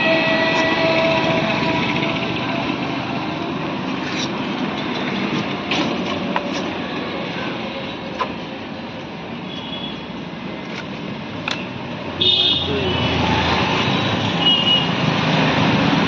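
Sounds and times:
road traffic: 0.0 - 16.0.

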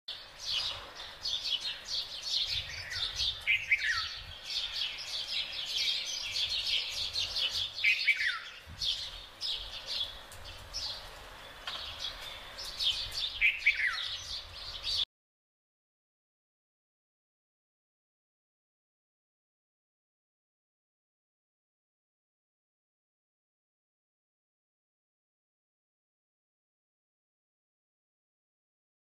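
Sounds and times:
small finches chirping: 0.4 - 15.0.

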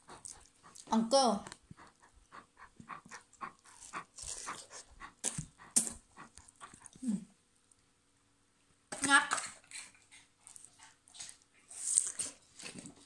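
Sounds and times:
dog panting: 0.0 - 7.0, 9.7 - 11.8.

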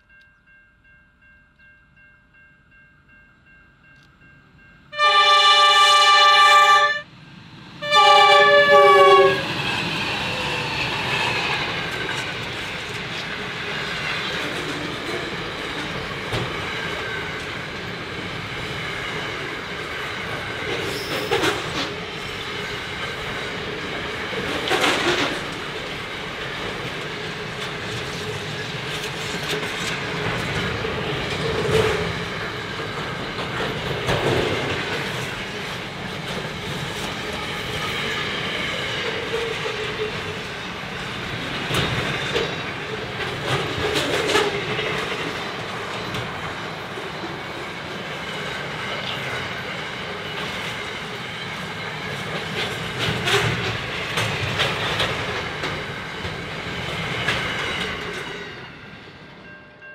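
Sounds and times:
train horn blast: 4.9 - 7.1, 7.8 - 9.5
train wheels clickety-clack: 7.8 - 58.9.

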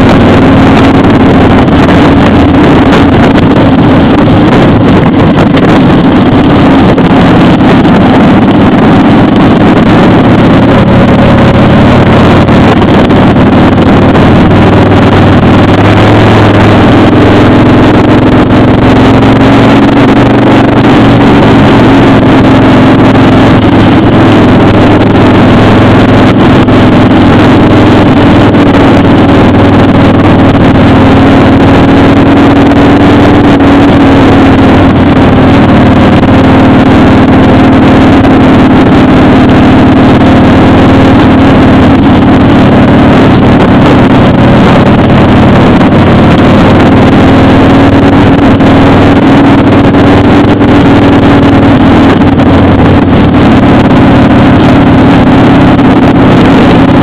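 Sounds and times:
wind rushing: 0.0 - 40.4
motorcycle engine cruising: 0.0 - 57.0.

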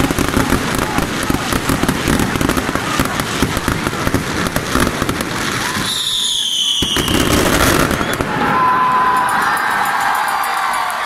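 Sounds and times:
firework bang: 0.0 - 8.8
firecrackers crackling: 0.0 - 11.0
falling firework whistle: 5.4 - 9.9.

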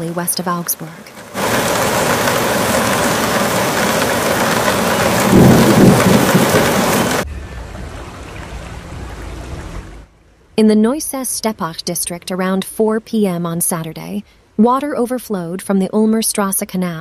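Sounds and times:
heavy hail and rain: 0.3 - 7.3
low rumble: 1.4 - 10.1.

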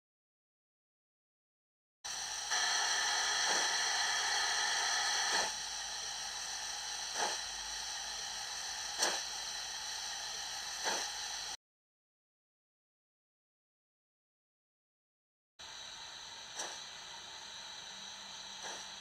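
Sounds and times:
steam locomotive hiss and chuffs: 2.1 - 11.6, 15.6 - 19.0.

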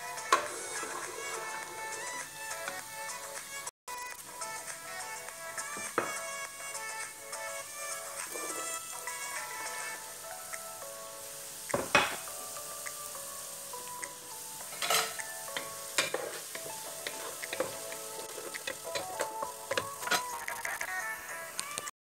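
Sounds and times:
onions sizzling in hot oil: 0.0 - 2.5, 4.2 - 20.9
utensil knocking against pot: 11.7 - 12.2
wooden spoon stirring onions: 14.6 - 20.5.

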